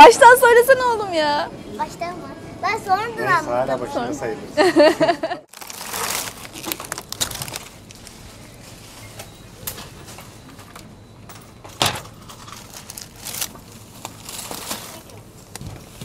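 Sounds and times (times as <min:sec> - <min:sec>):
plastic bags rustling: 0:05.5 - 0:10.4, 0:11.8 - 0:16.0.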